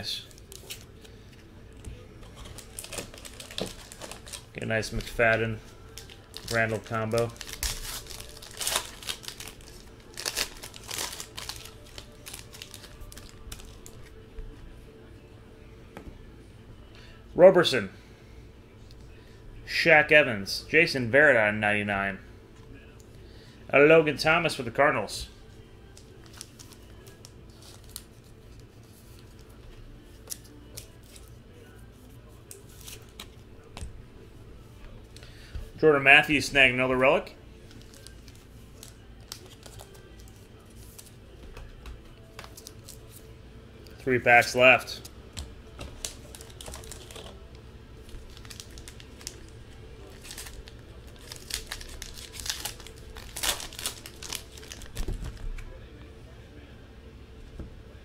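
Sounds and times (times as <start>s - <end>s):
trading cards handled: 0.3s - 14.2s, 37.6s - 43.3s, 45.0s - 47.5s, 48.1s - 55.7s
wrapper tearing and crinkling: 2.3s - 14.0s, 37.7s - 40.3s, 46.0s - 47.4s, 48.0s - 55.4s.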